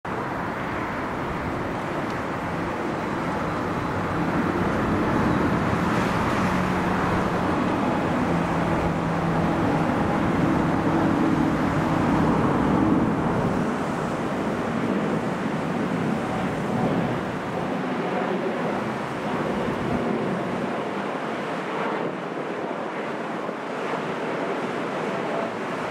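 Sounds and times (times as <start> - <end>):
jet airliner flying overhead: 0.1 - 25.9.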